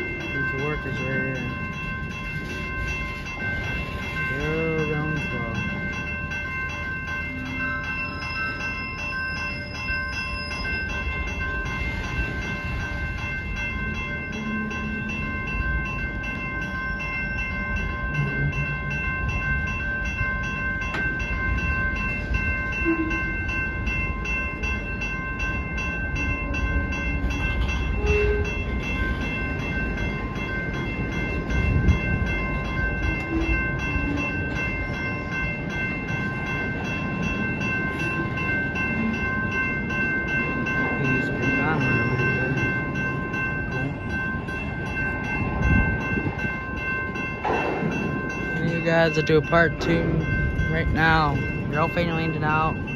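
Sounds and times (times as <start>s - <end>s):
railroad crossing bell ringing: 0.0s - 52.9s
train cars rolling rumble: 0.0s - 52.9s
rail squeaks and creaks: 17.7s - 19.0s, 21.9s - 23.7s, 26.1s - 50.5s.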